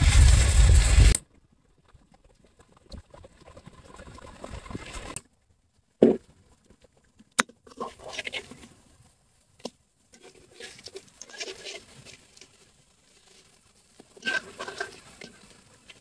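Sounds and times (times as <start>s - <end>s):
metal spatula scraping in wok: 14.2s - 15.4s.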